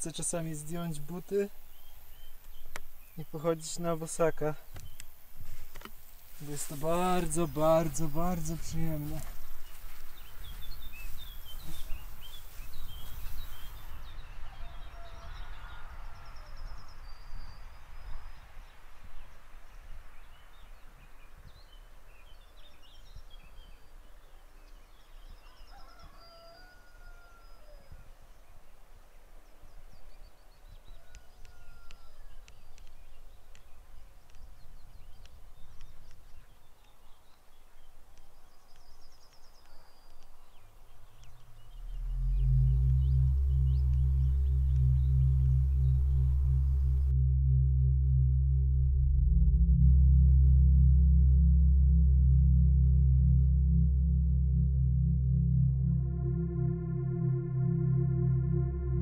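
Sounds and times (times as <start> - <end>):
rustling hiss: 0.0 - 14.0
small birds chirping and trilling: 0.0 - 47.1
wind rumble on microphone: 6.9 - 24.4, 38.4 - 56.1.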